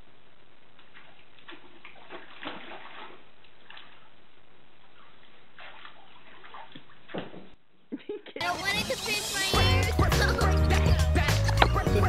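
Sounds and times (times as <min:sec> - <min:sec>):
dogs splashing in water: 0:01.0 - 0:04.0, 0:05.6 - 0:07.3.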